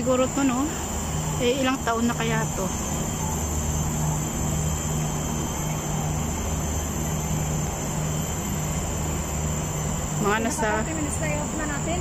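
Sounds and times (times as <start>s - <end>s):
low engine-like drone: 0.0s - 12.0s.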